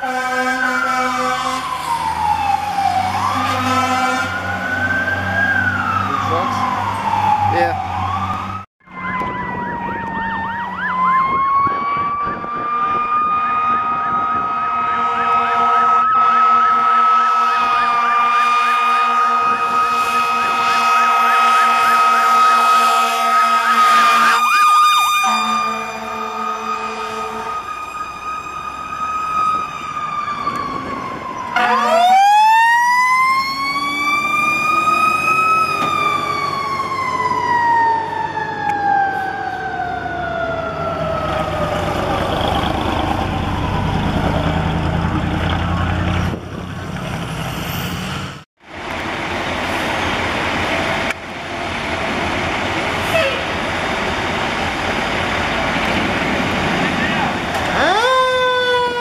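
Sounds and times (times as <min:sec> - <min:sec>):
road rumble: 0:00.0 - 0:59.0
heavy diesel engine: 0:40.9 - 0:58.1.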